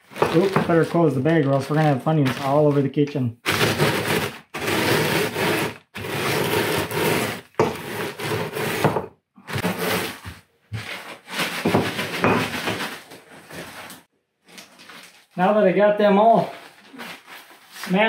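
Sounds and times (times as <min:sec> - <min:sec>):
rolling pin crushing snacks in bag: 0:00.0 - 0:00.9, 0:03.4 - 0:08.4.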